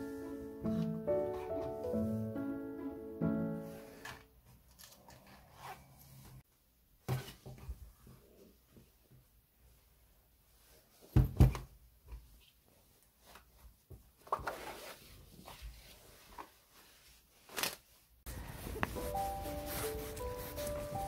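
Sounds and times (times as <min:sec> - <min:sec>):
background music held notes: 0:00.0 - 0:04.1, 0:18.3 - 0:21.0
fabric bags rustling: 0:14.6 - 0:21.0.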